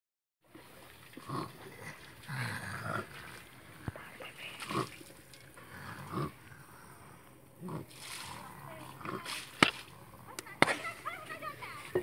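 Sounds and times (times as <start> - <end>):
boy snoring snorts: 5.6 - 6.9.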